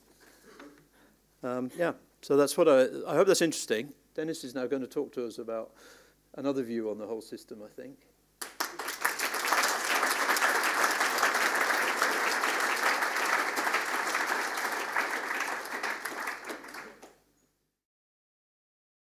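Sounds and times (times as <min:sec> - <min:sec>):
audience applauding: 0:08.4 - 0:17.2.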